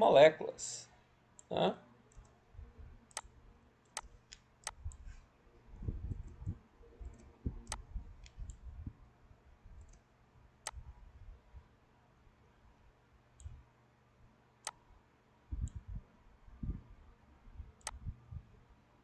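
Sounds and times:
computer mouse clicking: 0:02.1 - 0:02.4, 0:03.1 - 0:05.1, 0:06.1 - 0:08.6, 0:09.8 - 0:10.0, 0:17.8 - 0:18.0.

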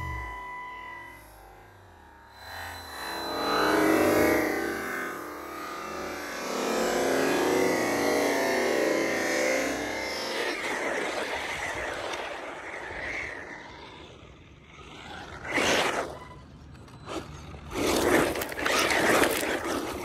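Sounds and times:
rc buggy motor: 0:00.0 - 0:20.0
tyres scraping gravel: 0:17.0 - 0:20.0.

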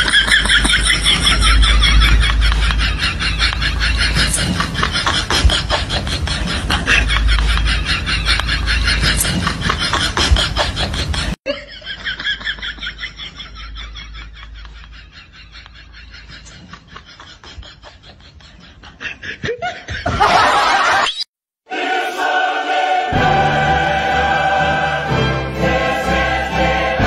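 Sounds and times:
laughter in pulses: 0:00.0 - 0:21.3
music with choir: 0:21.7 - 0:27.0.

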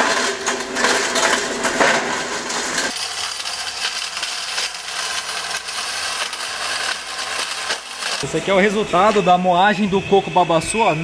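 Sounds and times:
nut pieces rattling clatter: 0:00.0 - 0:08.2
hammer mill running: 0:00.0 - 0:11.0.

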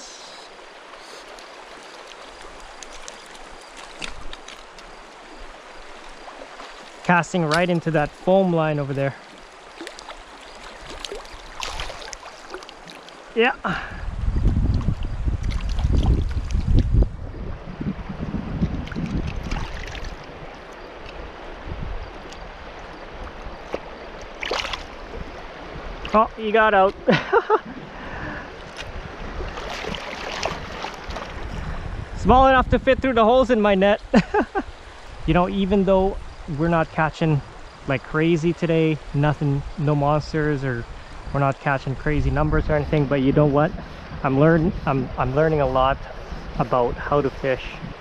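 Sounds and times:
river water rushing: 0:00.0 - 0:14.1, 0:19.1 - 0:31.9
sharp splashes: 0:01.0 - 0:13.4, 0:18.8 - 0:20.3, 0:23.7 - 0:25.0, 0:28.6 - 0:31.4
low rumble on microphone: 0:13.7 - 0:20.6.

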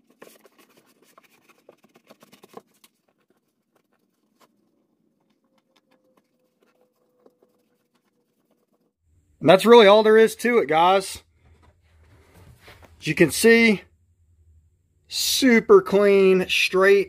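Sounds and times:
hands scuffing carpet: 0:11.4 - 0:13.0.

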